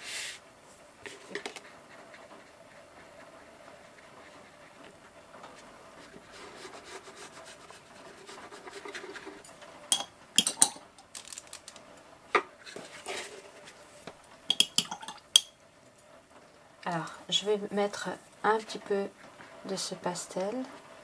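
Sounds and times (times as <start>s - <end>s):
paintbrush rubbing on paper: 1.0s - 9.4s.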